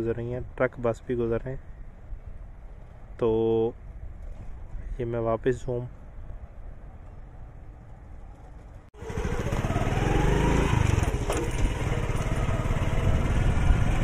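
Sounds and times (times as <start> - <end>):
small motorcycle engine revving: 9.0 - 14.0.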